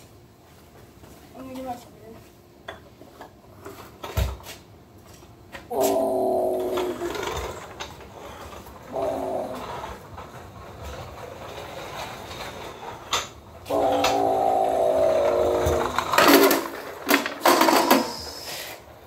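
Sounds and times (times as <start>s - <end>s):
toy truck clattering crash: 6.6s - 8.0s, 13.1s - 18.6s.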